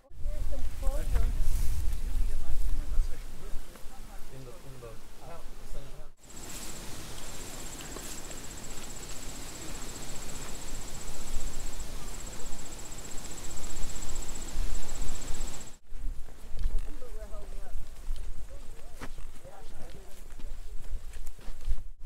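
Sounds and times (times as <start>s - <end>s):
insects trilling: 6.2s - 15.8s.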